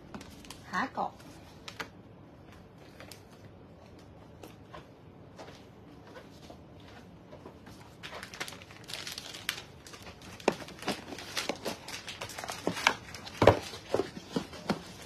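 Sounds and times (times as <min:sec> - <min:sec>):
cardboard packaging rustling: 0:06.1 - 0:15.0.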